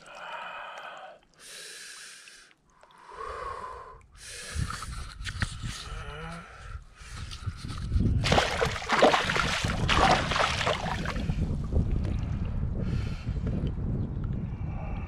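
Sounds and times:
wind on microphone: 4.4 - 15.0
fish splashing in water: 8.2 - 11.3.

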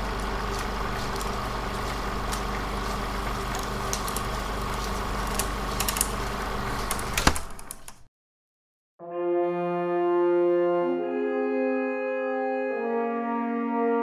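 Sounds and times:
machine humming: 0.0 - 7.8.

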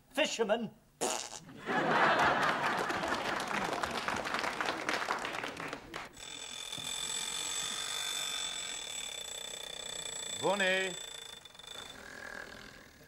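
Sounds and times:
audience laughing and clapping: 1.5 - 6.2
alarm clock ringing: 6.2 - 12.3.

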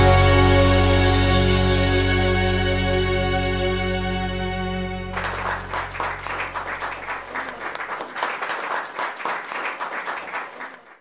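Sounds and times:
low bass note: 0.0 - 7.2
music: 0.0 - 7.5
audience applauding: 5.1 - 11.0.

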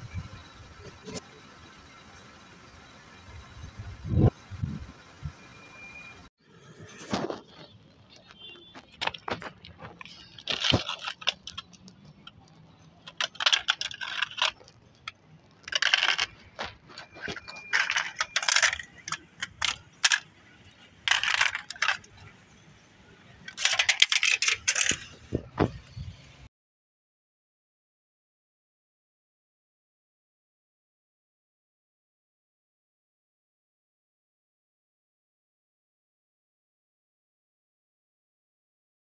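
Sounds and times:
flattened cans crinkling and clinking: 7.0 - 22.3, 23.4 - 25.1.

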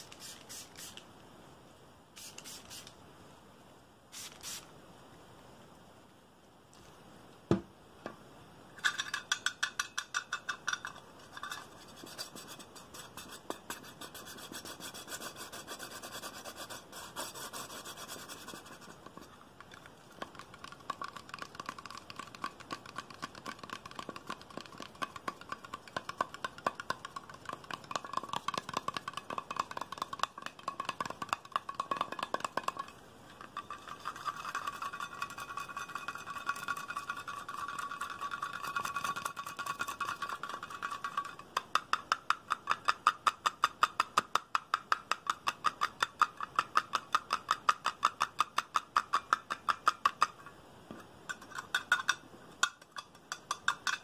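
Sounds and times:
fingernails tapping on containers: 20.2 - 50.4, 51.3 - 54.0.

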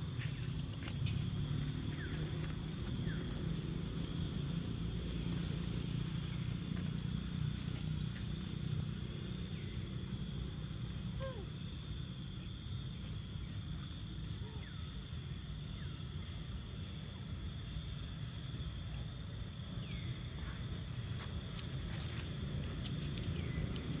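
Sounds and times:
low steady rumble: 0.0 - 14.2
insects chirring: 0.0 - 24.0.

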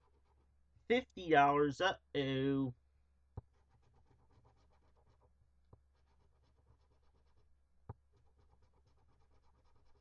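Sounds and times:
scratching lottery ticket: 3.6 - 7.5, 8.1 - 10.0.

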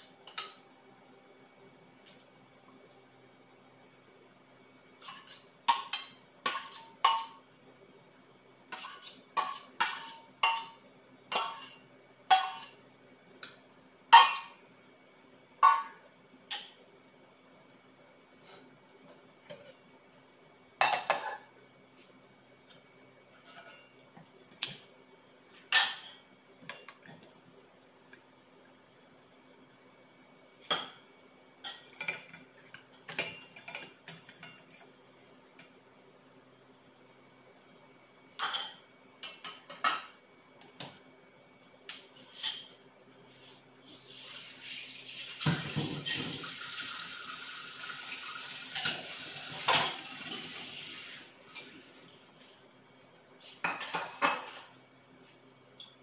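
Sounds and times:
dishes clinking against ceramic bowls: 5.0 - 7.4, 8.7 - 12.8, 14.2 - 14.6, 15.6 - 16.8, 20.8 - 21.5, 25.7 - 27.0, 38.4 - 40.2, 45.5 - 46.4, 53.7 - 54.7.

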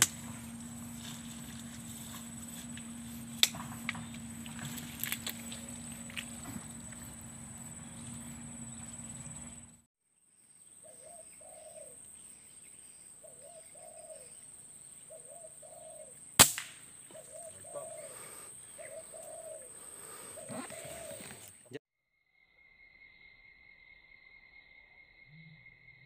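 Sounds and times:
walking through brush: 0.0 - 9.1, 20.4 - 21.7
dove cooing: 10.8 - 12.0, 13.2 - 14.4, 15.1 - 16.2, 17.1 - 21.6
air rifle shot: 16.4 - 16.8.

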